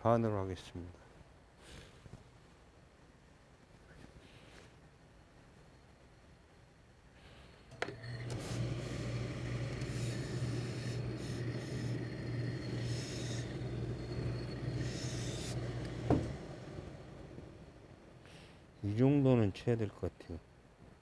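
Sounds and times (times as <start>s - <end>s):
low electric hum: 4.9s - 20.8s
iron sliding over cloth: 7.7s - 18.4s.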